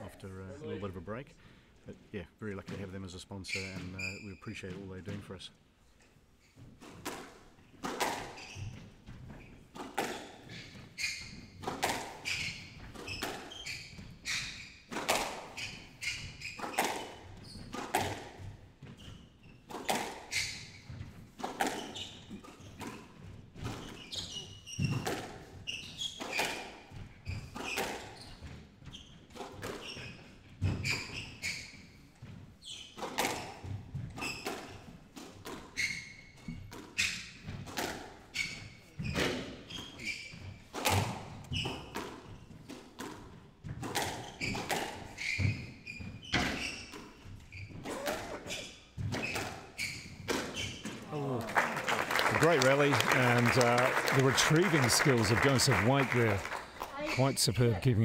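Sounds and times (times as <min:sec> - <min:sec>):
shoes squeaking on wooden floor: 0:01.8 - 0:51.2, 0:52.0 - 0:58.0
squash ball struck by rackets: 0:14.9 - 0:15.5, 0:17.7 - 0:18.3, 0:37.6 - 0:38.2, 0:40.7 - 0:42.2.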